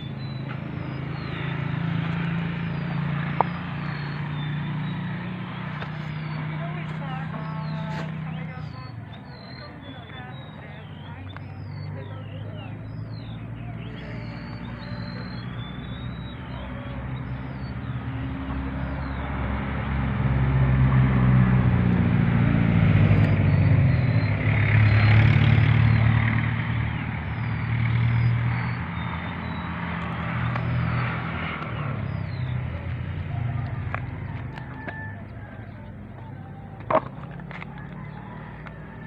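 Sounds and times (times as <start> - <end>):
vehicle engine humming: 0.0 - 39.0.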